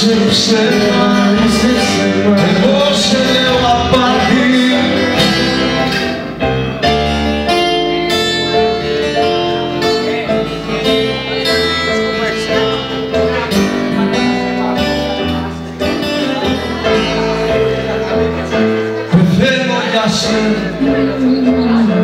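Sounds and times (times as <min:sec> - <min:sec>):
man singing: 0:00.0 - 0:07.0, 0:08.3 - 0:22.0
acoustic guitar strumming: 0:00.0 - 0:22.0.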